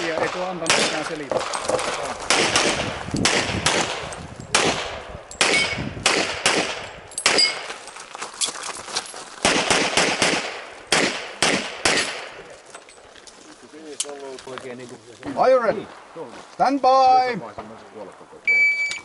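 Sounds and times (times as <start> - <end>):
pistol shots echoing: 0.0 - 7.7, 9.4 - 12.4.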